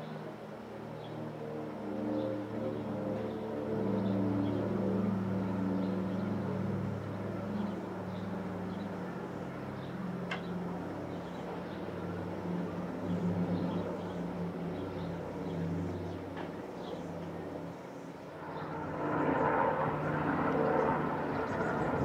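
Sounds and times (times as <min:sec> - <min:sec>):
propeller plane droning overhead: 0:00.0 - 0:22.0.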